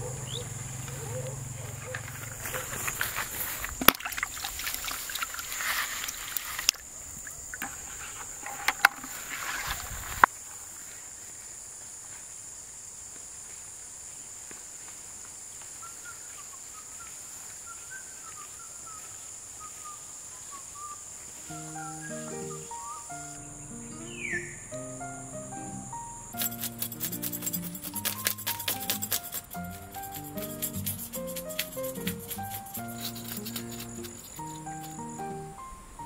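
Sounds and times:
faint bird chirps: 0:00.0 - 0:02.8, 0:15.7 - 0:24.9
high insect drone: 0:00.0 - 0:36.0
rustling: 0:00.8 - 0:06.9, 0:07.6 - 0:11.0, 0:26.4 - 0:35.1.

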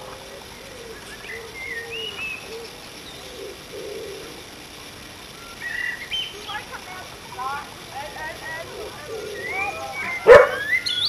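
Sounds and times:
dove cooing: 0:00.0 - 0:11.0
songbird whistling: 0:00.5 - 0:04.3, 0:05.3 - 0:06.8, 0:08.6 - 0:11.0.

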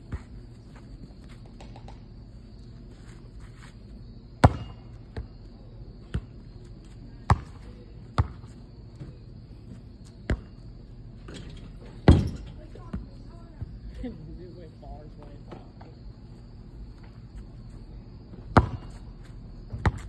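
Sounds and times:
basketball bouncing on asphalt: 0:00.0 - 0:02.2, 0:04.3 - 0:10.7, 0:12.0 - 0:13.8, 0:18.2 - 0:20.0.

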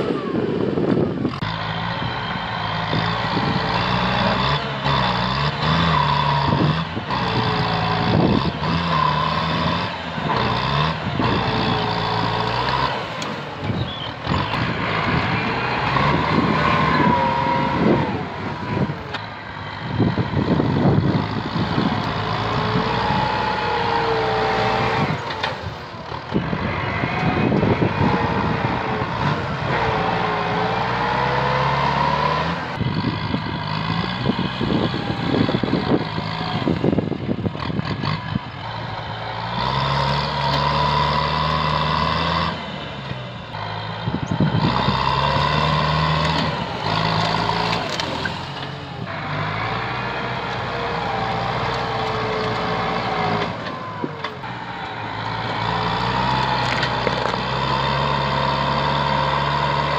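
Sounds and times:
tractor diesel engine under load: 0:00.0 - 0:59.9
branches crackling and snapping: 0:47.2 - 0:48.7, 0:56.3 - 0:57.6.

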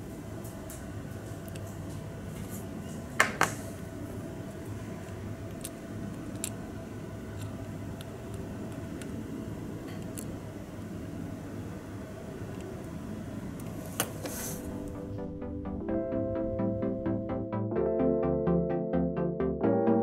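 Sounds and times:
steady low background hum: 0:00.0 - 0:19.4
tweezers clicking on plastic parts: 0:05.5 - 0:06.6, 0:09.9 - 0:10.3.

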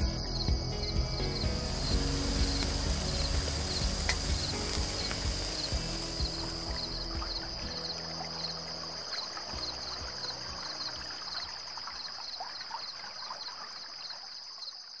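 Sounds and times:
crickets trilling: 0:00.0 - 0:15.0.

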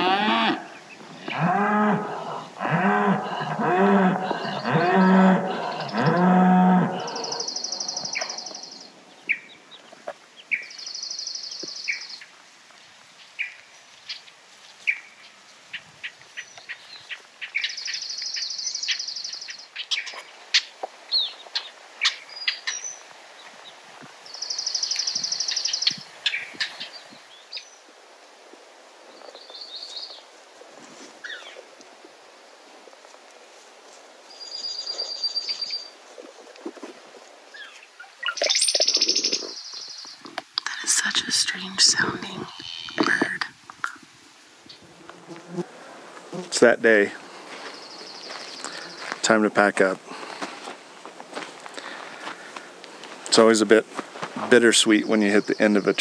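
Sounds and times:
cow mooing: 0:00.0 - 0:00.7, 0:01.3 - 0:07.5
birds buzzy trills: 0:00.0 - 0:12.3, 0:44.7 - 0:53.6.

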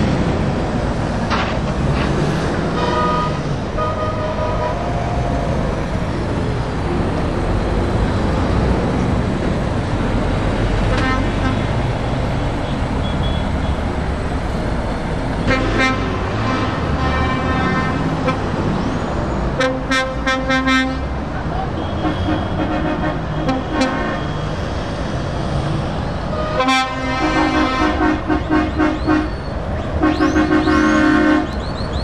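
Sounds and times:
passing lorries engine and tyre noise: 0:00.0 - 0:32.0
truck horn blasts: 0:02.7 - 0:05.1, 0:10.9 - 0:11.7, 0:15.4 - 0:18.5, 0:19.6 - 0:21.1, 0:21.7 - 0:24.4, 0:26.3 - 0:31.6.

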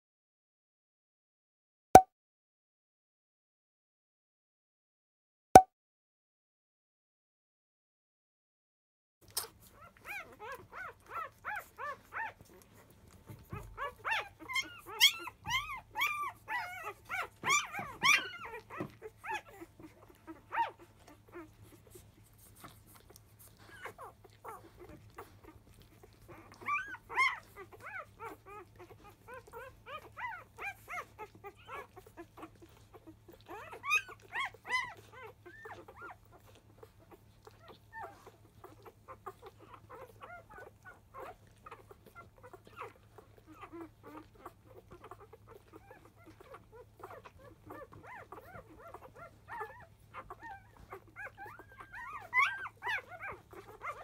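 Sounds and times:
puppies squealing and whimpering: 0:09.3 - 0:54.0.

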